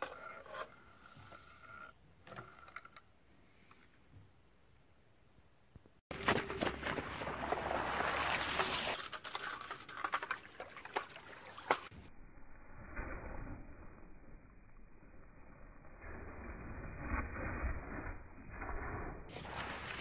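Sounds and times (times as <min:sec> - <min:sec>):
water swishing and splashing: 0:06.1 - 0:12.1, 0:19.3 - 0:20.0.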